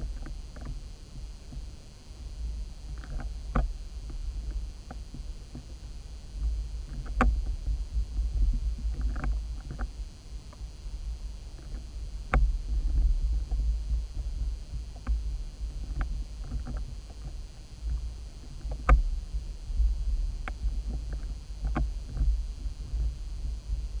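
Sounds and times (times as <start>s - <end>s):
underwater low rumble: 10.6s - 24.0s
faint clicks: 20.4s - 22.3s
sharp ticks: 20.4s - 22.3s.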